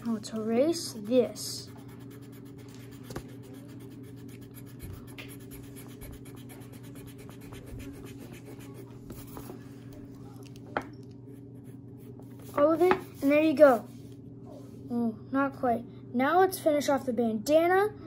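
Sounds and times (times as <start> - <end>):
steady low hum: 0.0 - 18.0
pencil and eraser rubbing paper: 0.4 - 9.6, 11.4 - 14.1.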